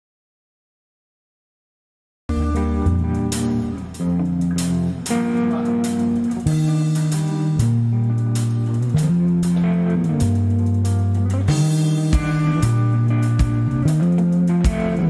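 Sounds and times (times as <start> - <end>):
bass line: 2.3 - 15.0
drums: 2.3 - 15.0
electric guitar chords: 2.3 - 15.0.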